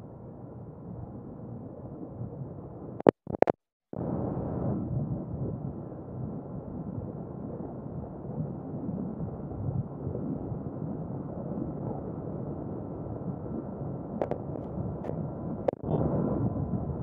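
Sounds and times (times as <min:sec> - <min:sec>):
muffled wind rumble: 0:00.0 - 0:17.0.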